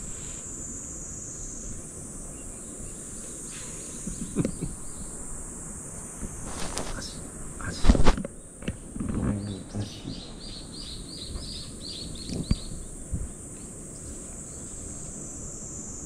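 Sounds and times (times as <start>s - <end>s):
insects buzzing: 0.0s - 16.0s
bird chirping: 2.3s - 5.2s, 7.0s - 15.1s.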